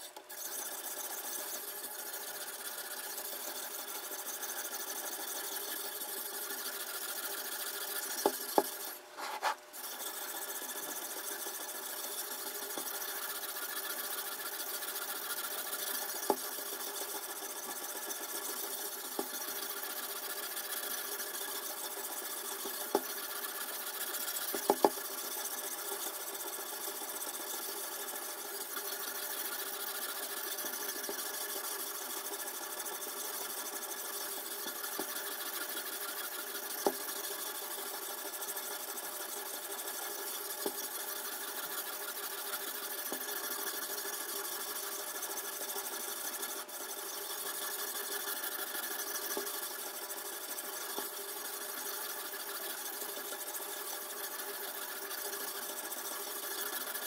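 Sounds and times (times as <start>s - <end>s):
sharpening stone rubbing on knife blade: 4.2s - 16.4s.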